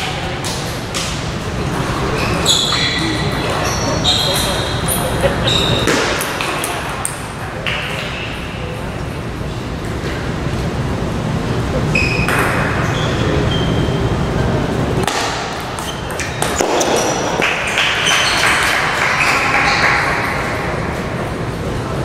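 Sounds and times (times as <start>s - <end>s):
ball bouncing on table: 12.2s - 12.8s.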